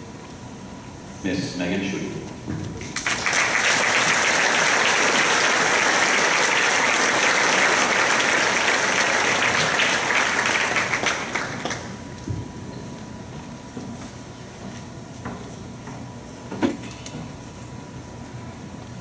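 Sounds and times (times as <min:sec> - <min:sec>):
audience applauding: 0:02.8 - 0:12.1.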